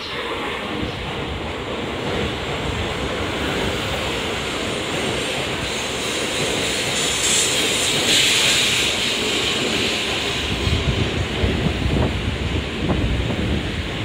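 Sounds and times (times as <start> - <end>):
train rushing past platform: 0.0 - 14.0.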